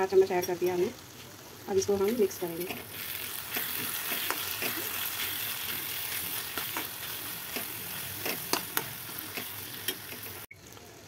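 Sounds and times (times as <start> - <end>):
vegetables sizzling in a pan: 0.0 - 11.0
spatula scraping a pan: 2.6 - 10.4.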